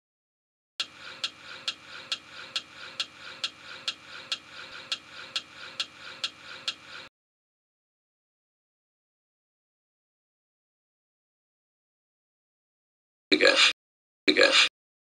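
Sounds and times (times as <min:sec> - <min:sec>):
sharp clock ticks: 0:00.8 - 0:07.1.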